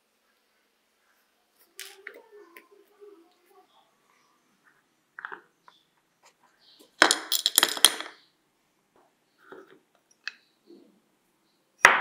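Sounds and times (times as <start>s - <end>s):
small screws clattering into dish: 7.0s - 8.2s.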